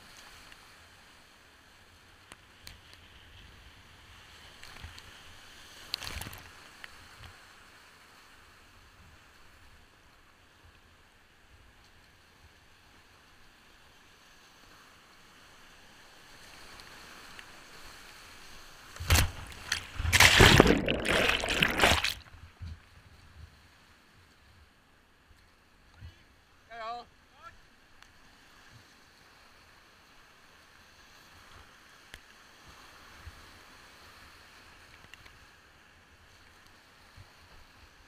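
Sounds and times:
water crashing and gurgling: 18.8 - 22.6
brief water splash: 19.0 - 22.4.

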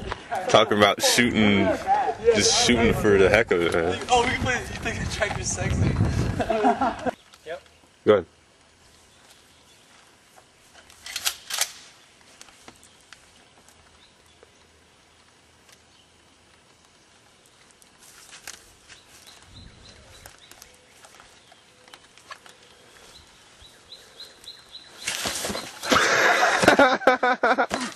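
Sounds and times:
footsteps through dry grass: 17.5 - 25.7.

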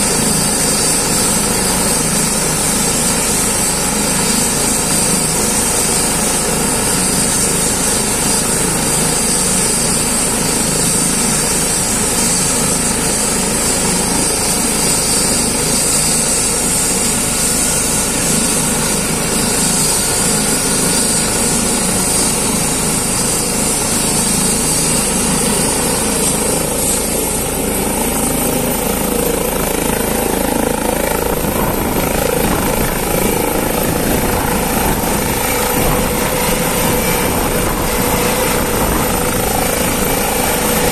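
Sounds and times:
helicopter rotor and turbine whine: 0.0 - 40.9.

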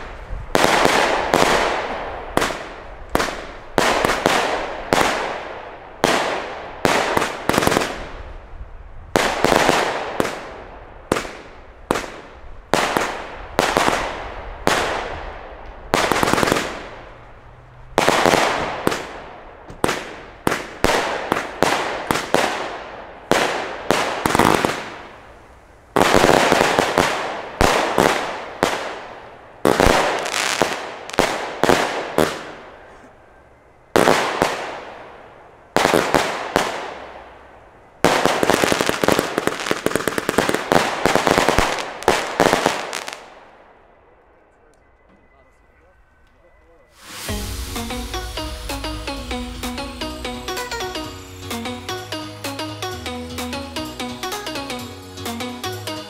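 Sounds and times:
firework bangs: 0.0 - 8.3, 9.2 - 17.2, 18.0 - 32.9, 34.0 - 43.4, 47.0 - 50.7.

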